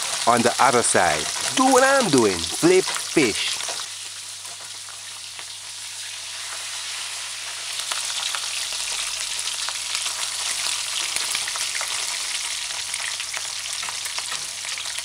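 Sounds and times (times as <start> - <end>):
fish frying in hot oil: 0.0 - 15.0.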